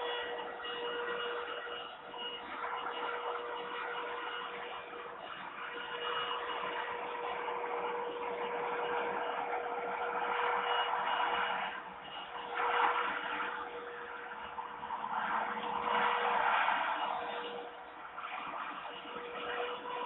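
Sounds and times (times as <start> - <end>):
constant hum: 0.0 - 20.0
rushing noise: 8.6 - 20.0.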